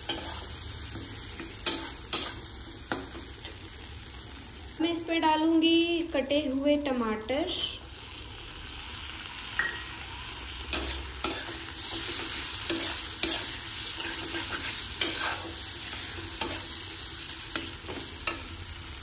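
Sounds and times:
spatula scraping a pan: 0:00.0 - 0:03.1, 0:10.7 - 0:18.6
tomatoes sizzling in hot oil: 0:00.0 - 0:19.0.

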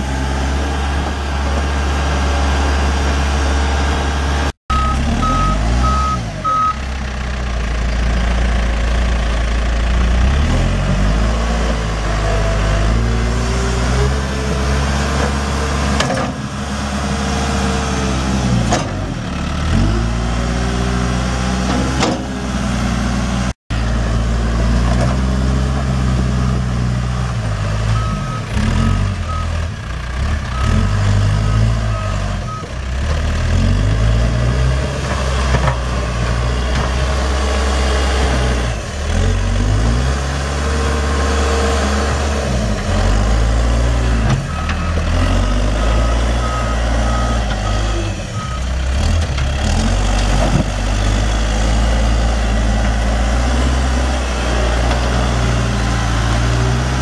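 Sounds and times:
backhoe diesel engine running: 0:00.0 - 0:57.0
backup alarm beeping: 0:04.7 - 0:06.8.

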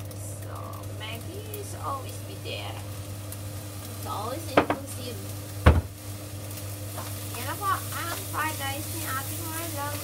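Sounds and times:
rice sizzling in frying pan: 0:00.0 - 0:10.0
sharp knocks: 0:05.6 - 0:05.9.

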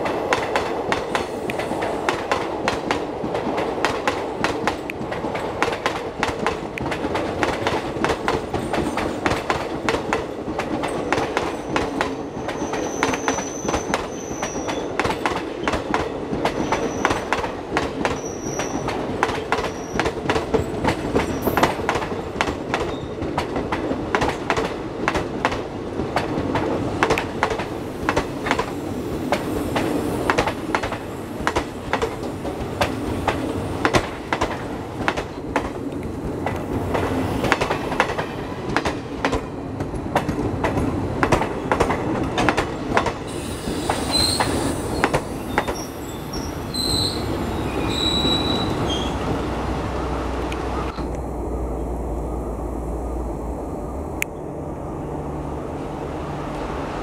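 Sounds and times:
train rumble: 0:00.0 - 0:57.0
high wheel squeals: 0:18.2 - 0:18.9, 0:43.3 - 0:49.2.

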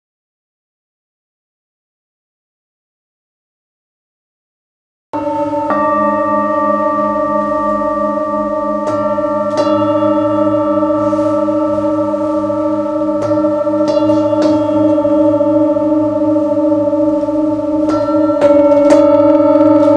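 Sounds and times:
metal singing bowls ringing: 0:05.2 - 0:19.9.

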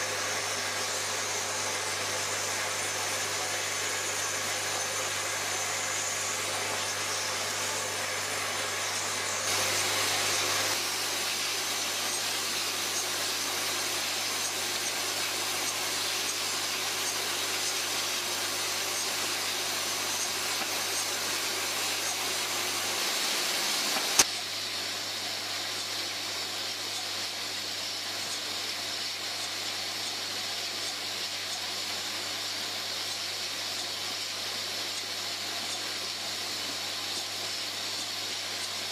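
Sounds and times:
bottle machine whirring: 0:00.0 - 0:24.6
sharp machine click: 0:23.9 - 0:24.4.

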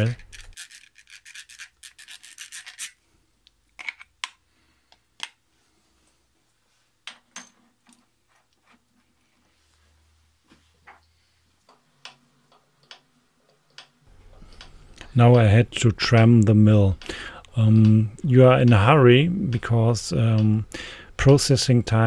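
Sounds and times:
scratchy rubbing strokes: 0:00.0 - 0:03.0.

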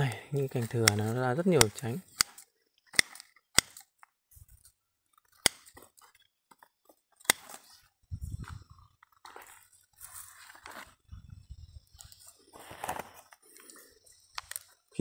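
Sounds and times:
pruning shears snipping: 0:00.0 - 0:04.0, 0:05.3 - 0:06.0, 0:07.2 - 0:07.8
leaves rustling: 0:09.2 - 0:13.3.

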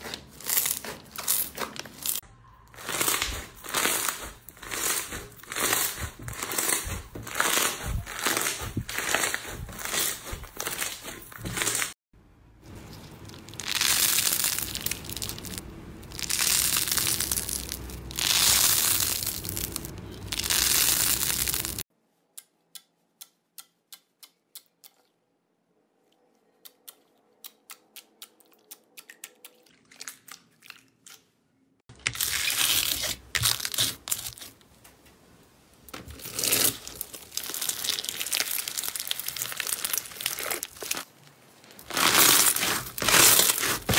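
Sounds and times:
foam-bead slime crunching: 0:00.0 - 0:12.0, 0:12.8 - 0:21.8, 0:31.9 - 0:34.6, 0:36.1 - 0:43.9
slime tearing: 0:02.8 - 0:11.9, 0:32.0 - 0:34.5, 0:36.2 - 0:41.1, 0:41.8 - 0:43.9
hands squeezing slime: 0:36.3 - 0:41.1, 0:41.8 - 0:43.9.

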